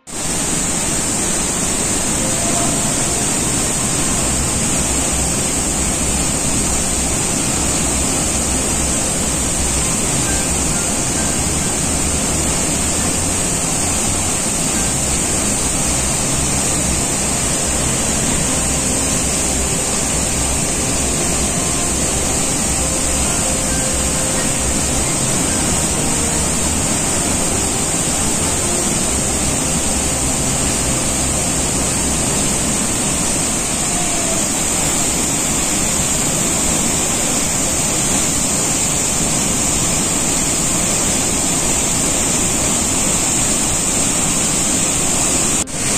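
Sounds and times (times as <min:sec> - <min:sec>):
waterfall rushing: 0:00.0 - 0:45.9.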